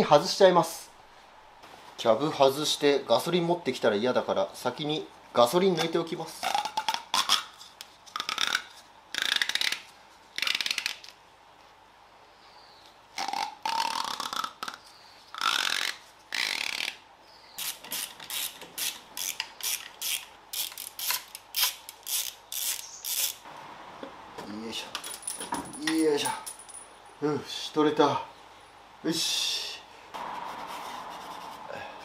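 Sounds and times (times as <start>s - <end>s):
tool rubbing and scraping strokes: 30.2s - 32.0s.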